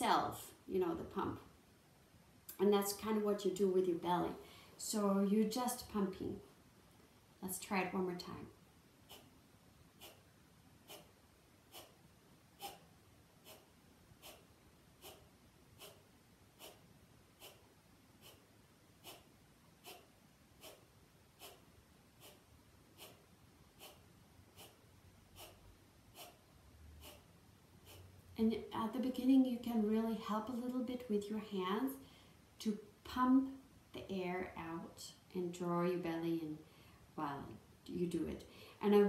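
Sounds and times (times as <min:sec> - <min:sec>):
forceful nasal exhales: 0:13.4 - 0:18.4, 0:19.0 - 0:23.2, 0:23.8 - 0:24.8.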